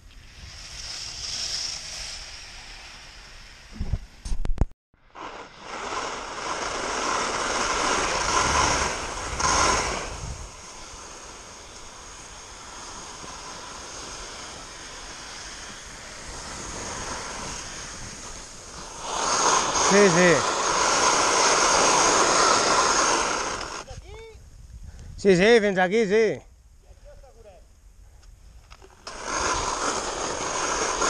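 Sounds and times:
skis scraping over snow: 0.2 - 3.8, 5.0 - 23.9, 28.8 - 31.0
wind rushing over microphone: 5.4 - 25.6.

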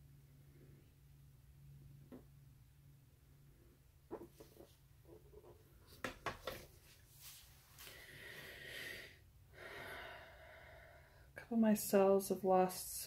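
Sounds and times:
soft hiss: 6.6 - 9.3.

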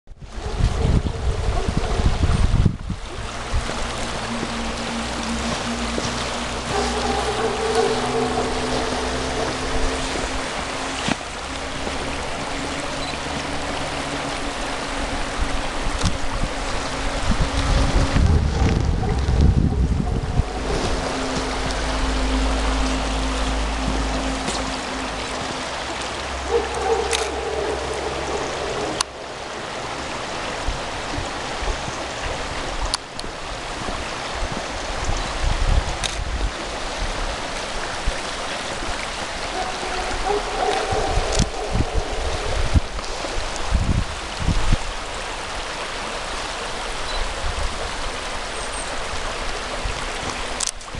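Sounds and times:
river water flowing: 0.1 - 50.9
low rumbling bumps: 0.2 - 36.5.

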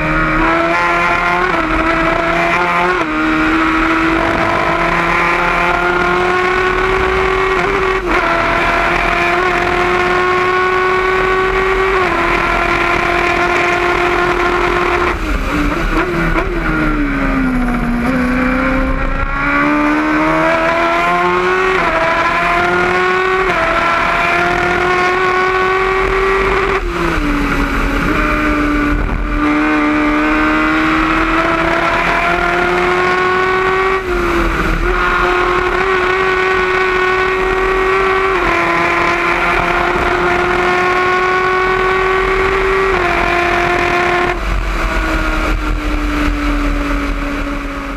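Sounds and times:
racing car engine revving: 0.0 - 47.9.

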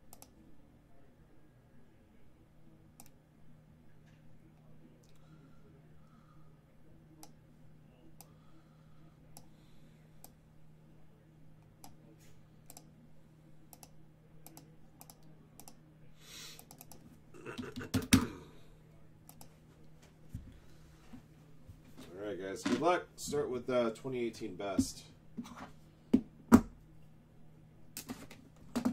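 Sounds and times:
keyboard and mouse clicking: 0.1 - 0.3, 13.7 - 15.8, 16.6 - 17.0.

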